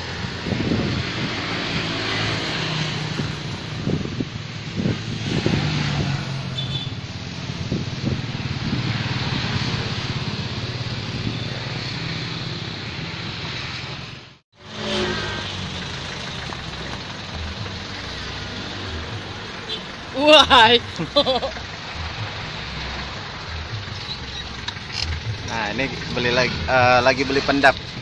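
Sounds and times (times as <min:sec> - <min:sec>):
road traffic passing: 0:00.0 - 0:28.0.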